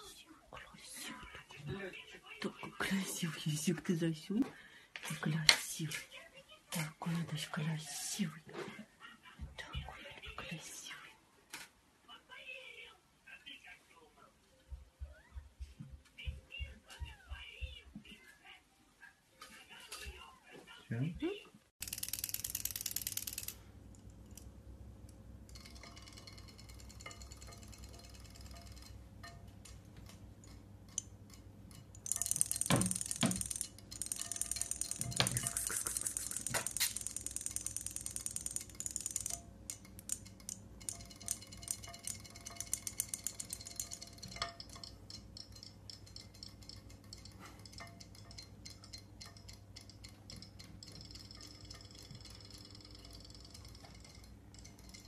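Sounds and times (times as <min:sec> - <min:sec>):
toy fish motor whirring: 0:21.8 - 0:23.6, 0:32.0 - 0:44.6
ticks and rattles: 0:21.8 - 0:55.0.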